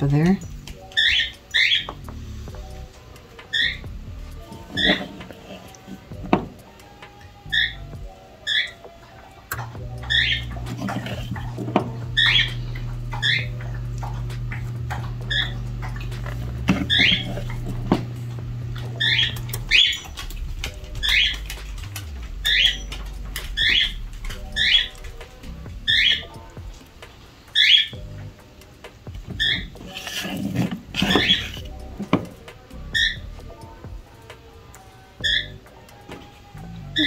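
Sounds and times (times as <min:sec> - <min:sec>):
animal squeaking: 0:00.0 - 0:26.8, 0:27.5 - 0:28.2, 0:29.1 - 0:33.7, 0:35.2 - 0:35.7, 0:36.5 - 0:37.0
low steady hum: 0:00.0 - 0:37.0.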